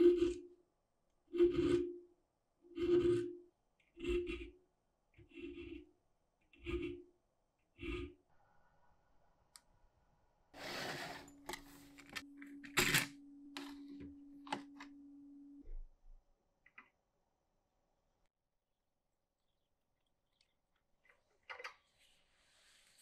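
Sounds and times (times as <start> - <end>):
low steady hum: 11.0 - 16.4.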